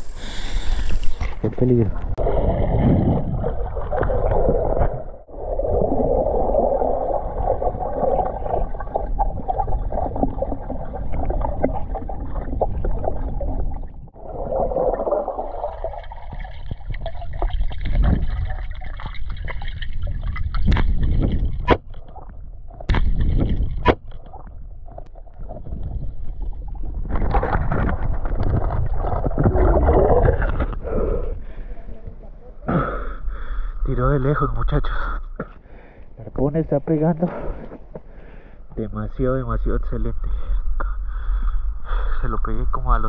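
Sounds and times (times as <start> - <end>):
muffled underwater rush and bubbling: 0.0 - 31.6.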